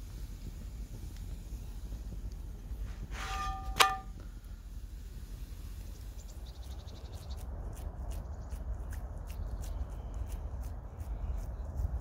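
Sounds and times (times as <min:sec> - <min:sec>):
low steady rumble: 0:00.0 - 0:12.0
metal object struck clang: 0:03.2 - 0:04.1.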